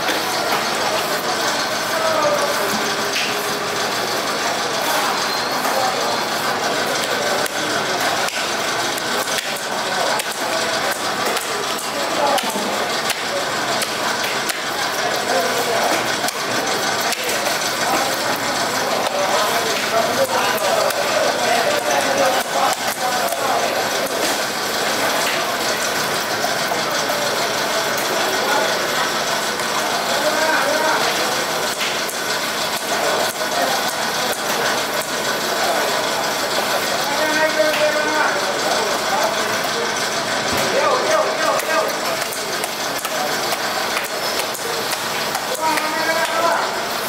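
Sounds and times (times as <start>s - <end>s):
machine rattling and whirring: 0.0s - 47.0s
market background noise: 0.0s - 47.0s
sharp clacks and knocks: 40.5s - 46.5s.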